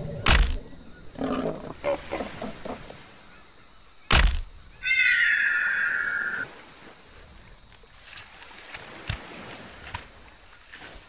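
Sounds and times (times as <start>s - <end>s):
sharp crack: 0.2s - 0.6s, 4.1s - 4.5s
screeching creature call: 4.8s - 6.4s.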